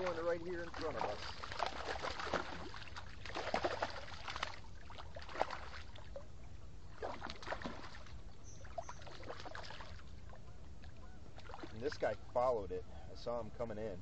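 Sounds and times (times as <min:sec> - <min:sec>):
fish splashing in water: 0:00.0 - 0:06.3, 0:06.9 - 0:10.2, 0:10.8 - 0:11.9.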